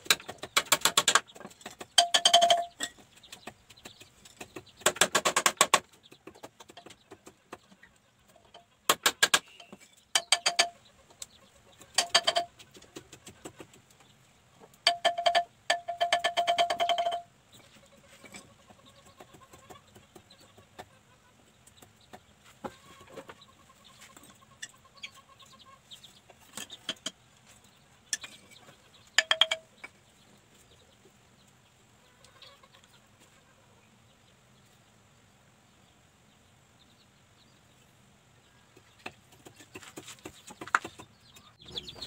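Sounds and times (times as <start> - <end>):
wooden beaters knocking bamboo tubes: 0.0 - 10.8, 11.8 - 14.0, 14.6 - 17.3, 28.1 - 30.0, 38.7 - 41.8.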